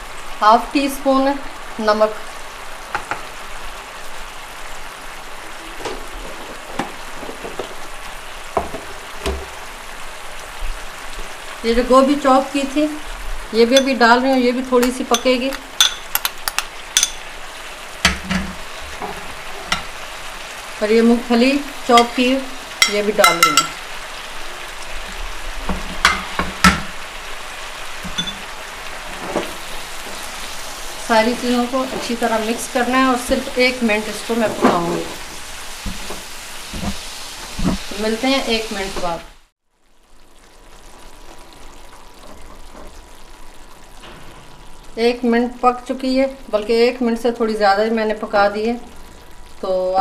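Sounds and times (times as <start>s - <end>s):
sauce simmering in a frying pan: 0.0s - 50.0s
spatula knocking against pan: 8.6s - 9.5s, 22.8s - 23.8s, 26.0s - 26.9s.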